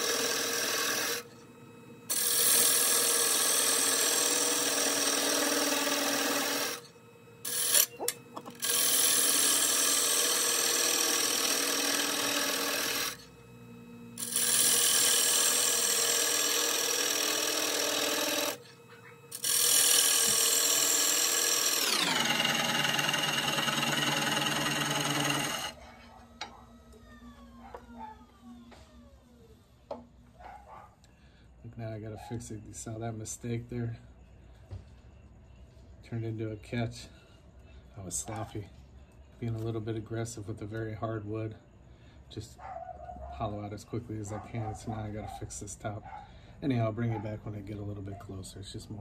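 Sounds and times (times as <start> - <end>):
wood lathe whine: 0.0 - 30.1.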